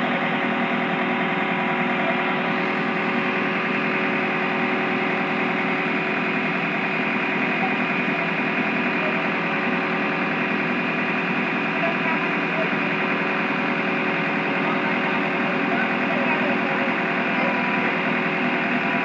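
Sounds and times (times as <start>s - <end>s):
excavator diesel engine running: 0.0s - 19.0s.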